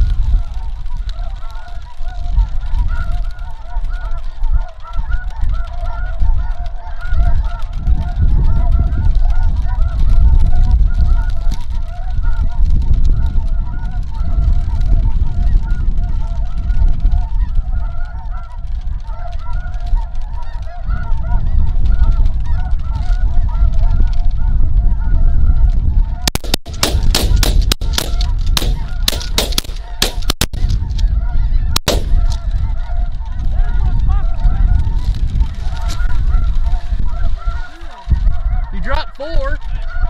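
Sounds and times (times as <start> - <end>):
geese honking: 0.3 - 40.0
sharp cracks: 26.3 - 31.0, 31.7 - 33.4.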